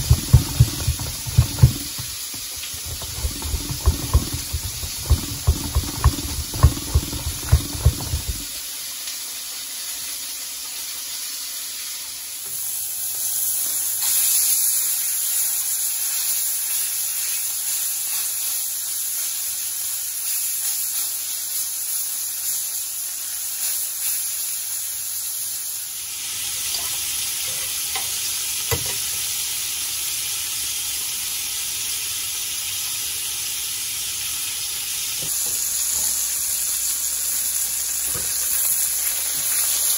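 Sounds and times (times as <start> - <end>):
knock: 0.0 - 8.5
garlic on metal grater: 0.0 - 8.6
grater knocking on cutting board: 0.0 - 8.6
mushrooms frying: 0.0 - 39.9
steak sizzling in frying pan: 0.0 - 39.9.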